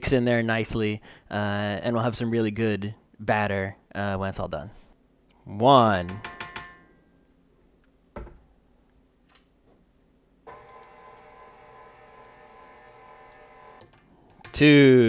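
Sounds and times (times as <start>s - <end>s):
stand mixer motor running: 10.5s - 13.8s.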